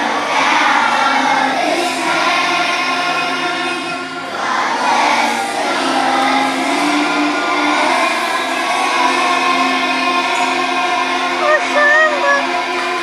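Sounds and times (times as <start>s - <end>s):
children's choir singing: 0.0s - 13.0s.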